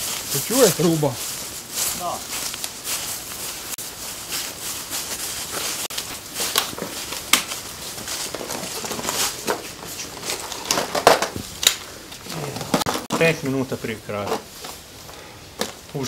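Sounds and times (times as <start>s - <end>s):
footsteps through long grass: 0.0s - 10.6s
plastic boxes clicking and knocking: 8.3s - 13.4s.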